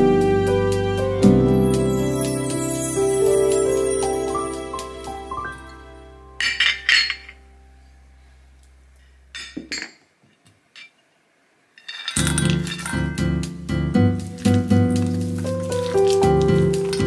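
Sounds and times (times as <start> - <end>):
background music: 0.0 - 8.1, 12.2 - 17.0
glass dish clinking on steel bowl: 6.4 - 7.4.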